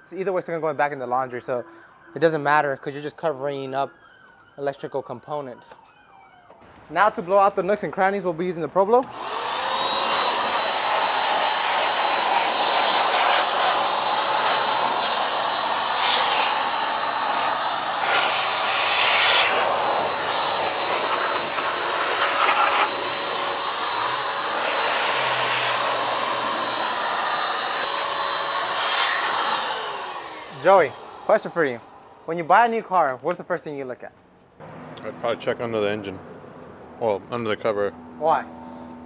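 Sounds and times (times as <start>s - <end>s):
electric air blower whining: 8.7s - 32.5s.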